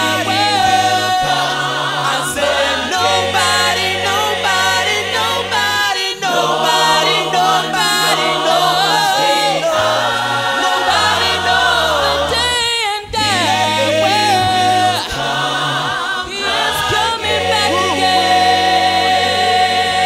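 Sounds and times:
choir singing in harmony: 0.0 - 20.0
low bass notes: 13.2 - 15.3, 16.8 - 19.2
man singing lead: 13.2 - 15.4, 16.5 - 19.6.

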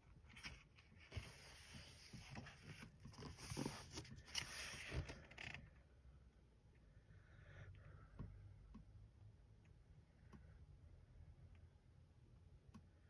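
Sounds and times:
paper pages rustling and turning: 0.2 - 5.6.

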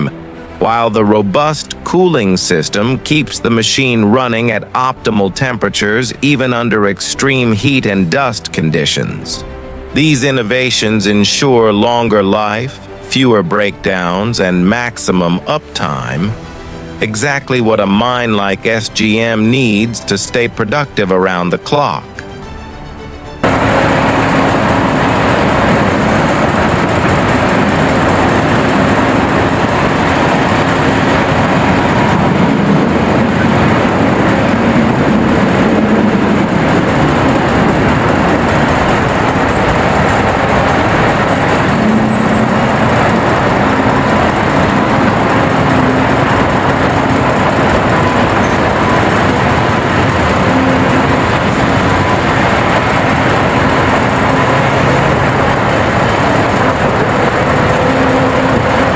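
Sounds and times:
diesel excavator digging rock: 36.6 - 58.9.

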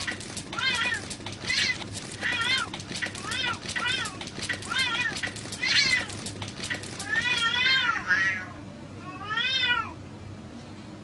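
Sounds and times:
cats yowling and meowing: 7.0 - 10.0.

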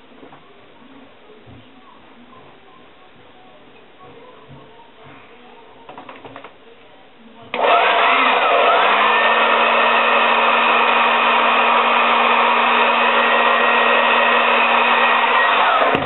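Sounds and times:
hair dryer running: 7.5 - 16.0.

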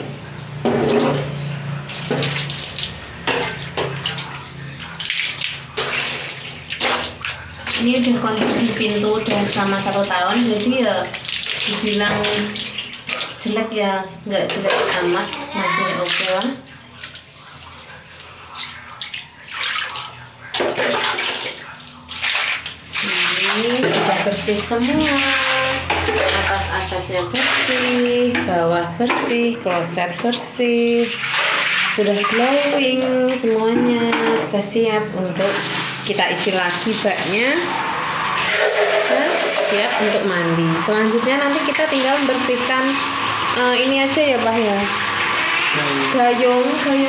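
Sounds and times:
water splashing against door: 0.7 - 13.5, 18.6 - 28.4, 30.8 - 33.4, 35.5 - 47.0.

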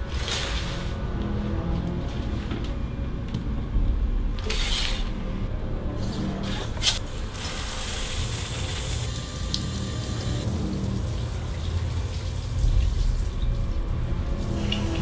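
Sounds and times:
background music: 0.0 - 15.0
shower water splashing: 7.4 - 15.0.

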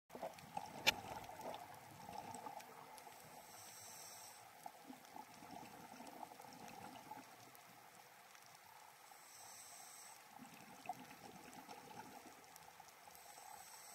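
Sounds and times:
muffled underwater water noise: 0.1 - 13.9
thin hiss: 9.0 - 10.3, 13.2 - 13.9.

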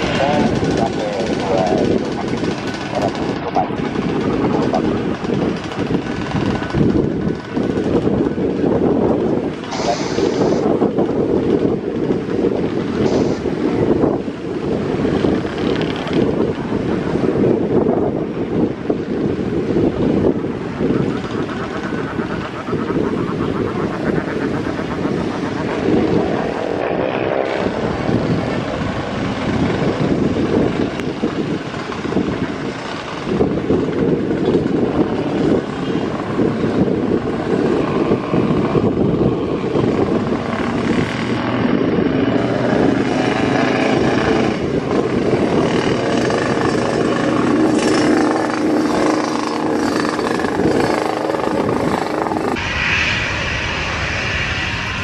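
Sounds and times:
motorcycle engines running: 0.0 - 9.6, 21.0 - 52.6
jet engine roar: 0.0 - 55.0.

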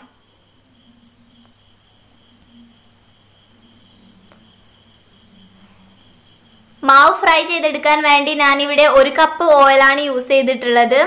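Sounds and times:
high-pitched insect trilling: 0.0 - 10.7.

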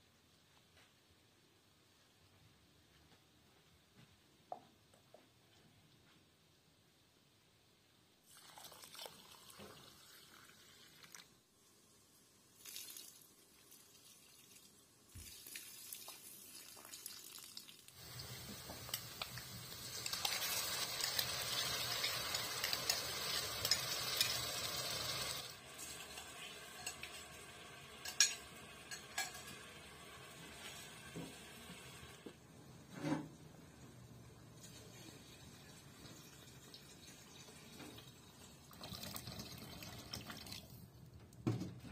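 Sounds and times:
liquid pouring from jug: 8.3 - 11.3, 12.6 - 17.8, 36.1 - 40.8
food sizzling in oil: 17.9 - 32.0
wooden spoon stirring and scraping: 20.0 - 24.4.

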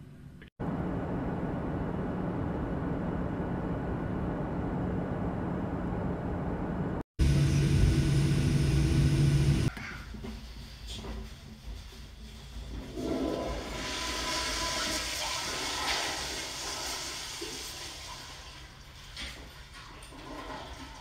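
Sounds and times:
airliner cabin roar: 0.6 - 9.7
jet engine hum: 0.6 - 9.7.

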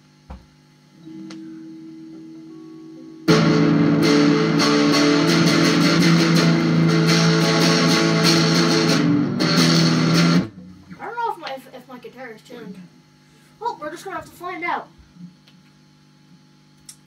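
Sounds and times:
amplifier hum: 0.0 - 17.0
electric guitar chords strummed: 1.0 - 11.0.

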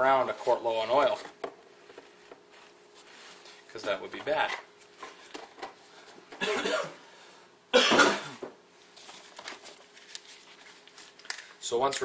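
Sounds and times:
person clearing throat: 6.4 - 7.0, 7.7 - 8.5
person coughing: 6.4 - 7.0, 7.7 - 8.5.

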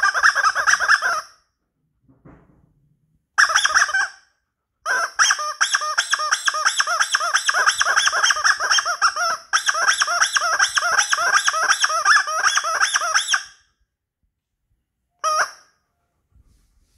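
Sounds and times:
squeaky toy horn honks: 0.0 - 1.4, 3.4 - 4.2, 4.8 - 13.6, 15.2 - 15.8.

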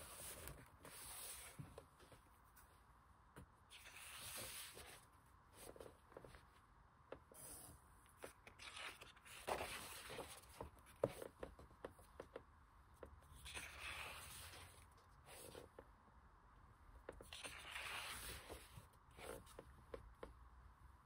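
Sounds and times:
paper pages rustling: 8.2 - 11.4, 17.2 - 19.6.

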